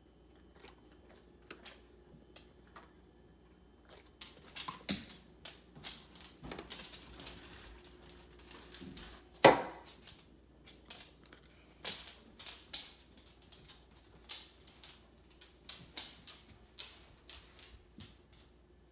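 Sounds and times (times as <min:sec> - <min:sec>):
dog claws tapping on hard floor: 0:04.4 - 0:18.5.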